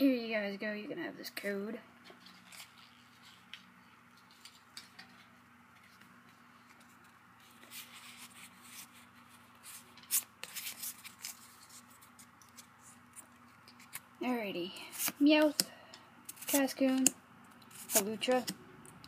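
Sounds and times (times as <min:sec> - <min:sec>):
faint steady hum: 0:00.0 - 0:19.0
cards rubbing and sliding: 0:02.2 - 0:14.1, 0:16.3 - 0:18.6.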